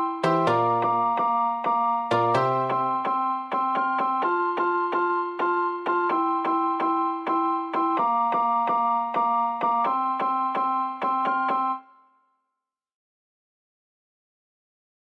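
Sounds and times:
keyboard playing repeated chords: 0.0s - 12.0s.

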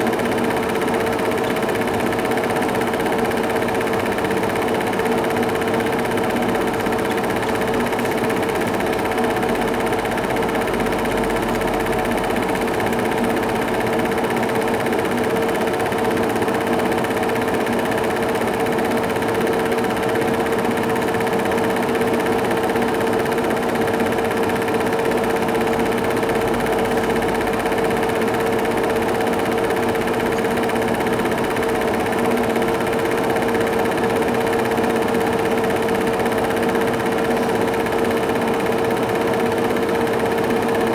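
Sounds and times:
film projector whirring: 0.0s - 40.9s.

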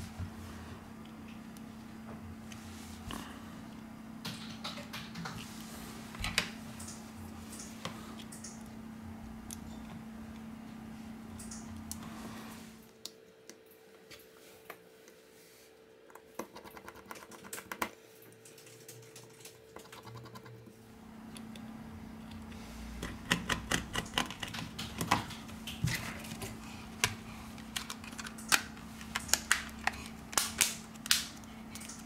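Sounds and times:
faint steady hum: 0.0s - 32.0s
plastic cover clips snapping: 27.0s - 32.0s.

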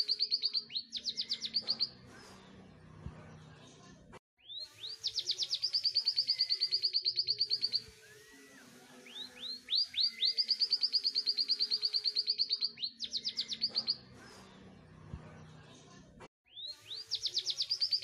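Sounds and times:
canary singing in rapid trills: 0.0s - 2.0s, 4.4s - 14.2s, 16.5s - 18.0s.

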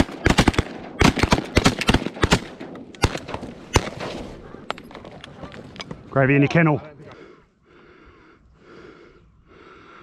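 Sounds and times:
shotgun shots: 0.0s - 4.6s.

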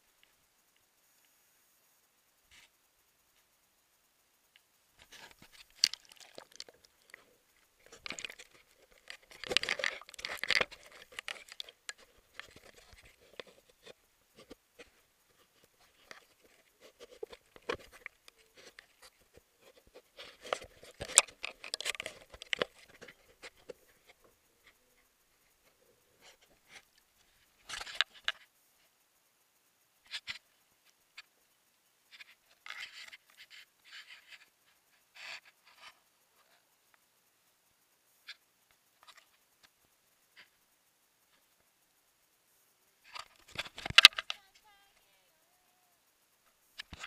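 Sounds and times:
scraping on camera: 5.0s - 28.4s
camera handling rubbing and knocks: 7.8s - 24.8s, 43.1s - 44.4s.

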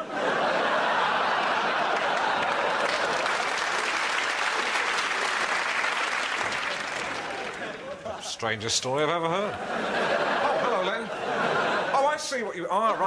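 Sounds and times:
audience applauding: 0.5s - 8.2s.

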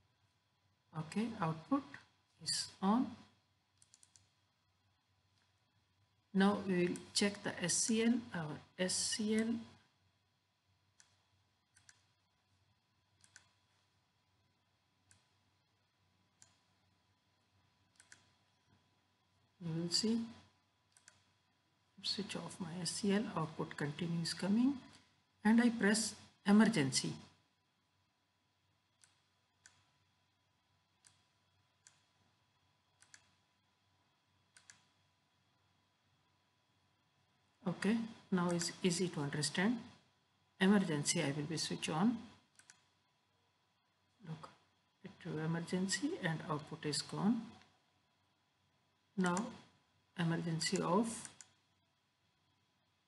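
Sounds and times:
faint steady hum: 0.0s - 53.0s
computer mouse clicks: 3.7s - 4.4s, 10.9s - 12.2s, 13.2s - 14.0s, 15.0s - 15.4s, 16.3s - 16.7s, 17.9s - 18.4s, 20.3s - 21.4s, 28.9s - 30.0s, 31.0s - 32.2s, 32.9s - 33.4s, 34.4s - 35.0s, 38.5s - 38.8s, 42.3s - 43.0s, 49.2s - 49.7s, 50.6s - 51.6s.

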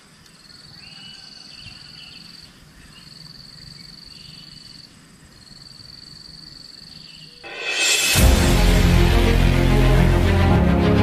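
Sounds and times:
insects trilling: 0.0s - 7.4s.

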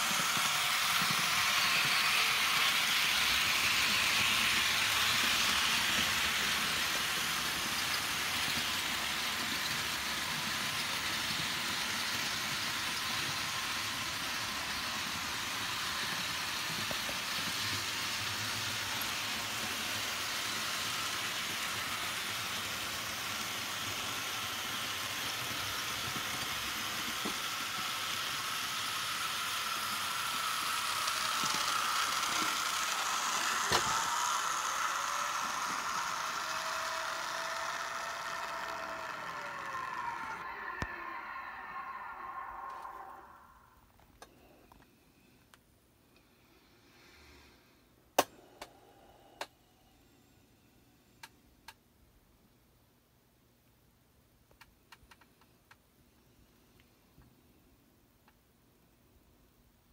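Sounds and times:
thin whine: 0.0s - 22.6s, 23.9s - 45.3s
motor hum: 0.0s - 43.7s
model train wheels rolling: 0.0s - 44.4s.

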